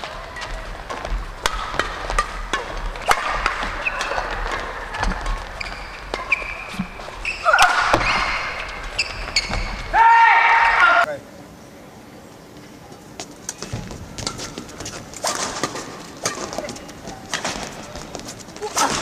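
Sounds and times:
shoes squeaking on court floor: 0.0s - 10.0s
racket hitting shuttlecock: 0.4s - 9.7s, 13.7s - 17.9s.

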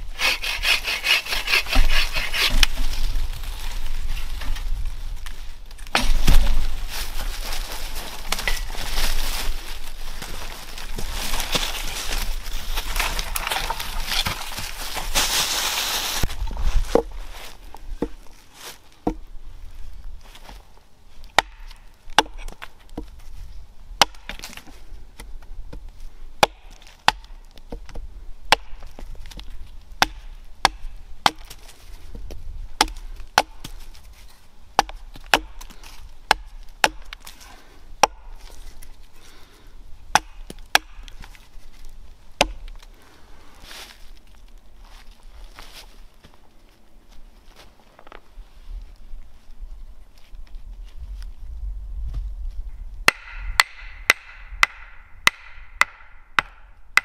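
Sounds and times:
hatchet chopping wood: 0.2s - 2.8s, 5.9s - 6.6s, 19.0s - 19.2s, 21.3s - 23.1s, 24.0s - 24.6s, 26.4s - 29.4s, 30.0s - 31.6s, 32.8s - 33.8s, 34.8s - 37.3s, 38.0s - 38.4s, 40.1s - 41.3s, 42.4s - 42.8s, 53.1s - 57.0s.

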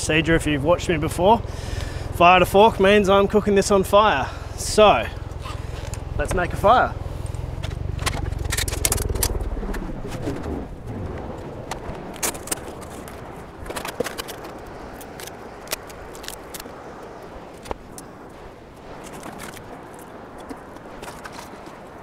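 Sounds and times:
wind rumbling on microphone: 0.0s - 22.0s
camping gear clacking: 7.2s - 10.5s, 11.7s - 16.8s.

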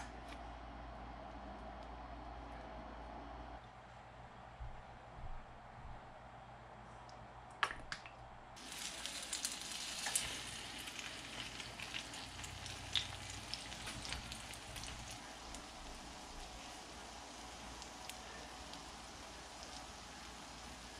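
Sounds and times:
bread sizzling in oil: 8.6s - 20.9s.

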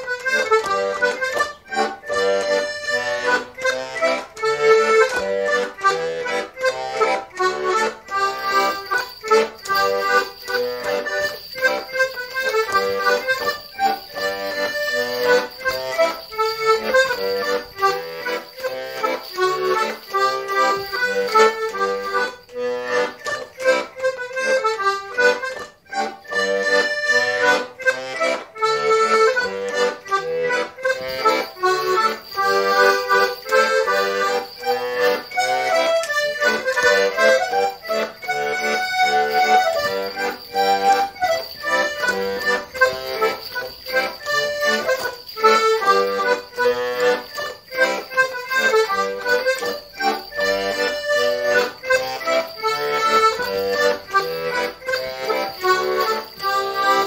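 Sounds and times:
accordion dance tune: 0.0s - 57.0s.

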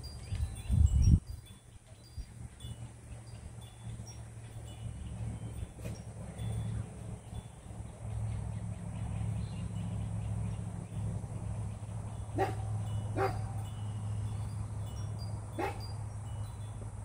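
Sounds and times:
steady low hum: 0.0s - 17.0s
dog barking: 12.4s - 13.5s, 15.6s - 15.9s.

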